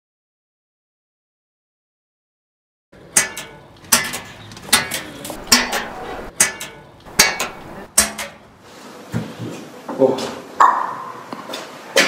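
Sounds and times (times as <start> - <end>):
sharp metallic clanks: 3.0 - 8.5.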